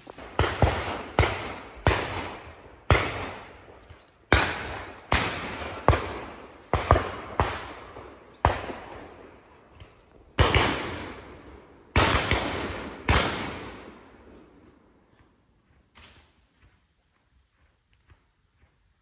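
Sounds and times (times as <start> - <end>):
shotgun shots: 0.0 - 9.5, 10.4 - 14.1.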